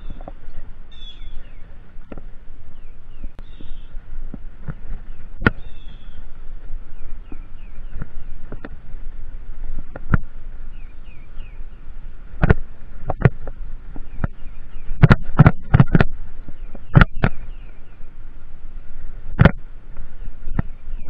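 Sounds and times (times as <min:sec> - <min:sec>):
bike tyres rumbling on grass: 0:00.0 - 0:21.0
wind on camera: 0:00.0 - 0:21.0
bike knocks and rattles: 0:12.4 - 0:17.5.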